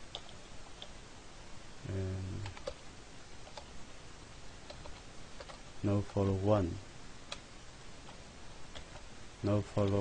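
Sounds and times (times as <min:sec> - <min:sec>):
short wordless voice: 0:01.8 - 0:02.5
keyboard typing: 0:02.4 - 0:02.8, 0:03.4 - 0:03.7, 0:04.6 - 0:05.7, 0:08.1 - 0:09.1.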